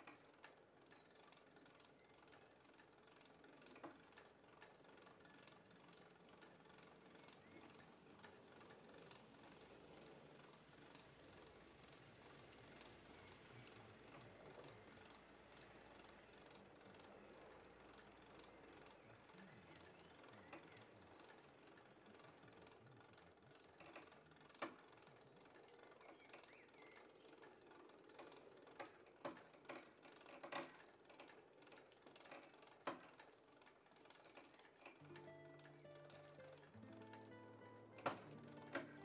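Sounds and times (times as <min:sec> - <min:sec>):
faint mechanical clicking and knocking: 0:00.0 - 0:39.0.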